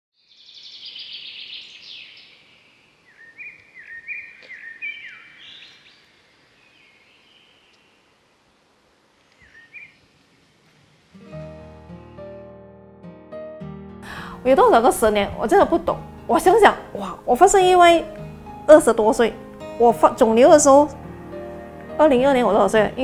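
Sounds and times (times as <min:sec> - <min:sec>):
birds singing and calling: 0:00.2 - 0:08.0, 0:09.3 - 0:10.0
faint outdoor hiss: 0:00.2 - 0:12.5, 0:14.0 - 0:23.0.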